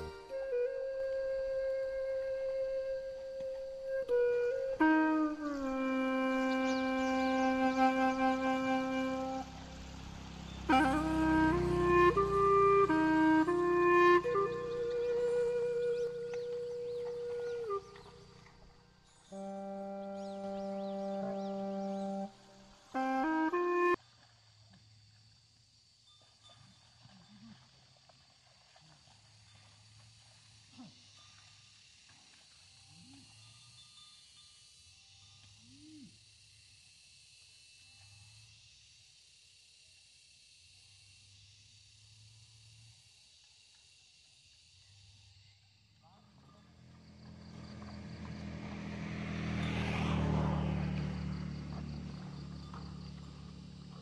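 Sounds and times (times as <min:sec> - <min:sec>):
vehicle engine passing by: 0:05.8 - 0:24.0, 0:46.2 - 0:54.0.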